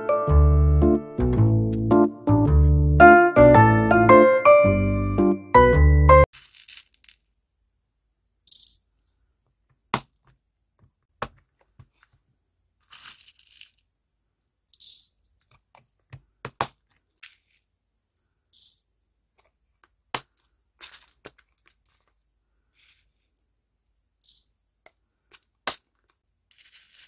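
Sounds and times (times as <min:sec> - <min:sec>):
plastic beads rattling: 0:06.3 - 0:07.4, 0:12.8 - 0:13.9, 0:14.7 - 0:15.4, 0:17.1 - 0:17.7, 0:20.8 - 0:22.2, 0:24.2 - 0:24.6, 0:25.8 - 0:27.0.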